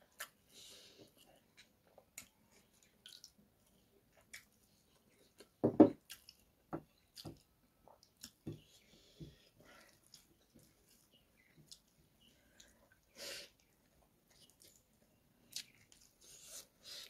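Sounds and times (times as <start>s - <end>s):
wet squishes of eating: 1.4s - 8.4s.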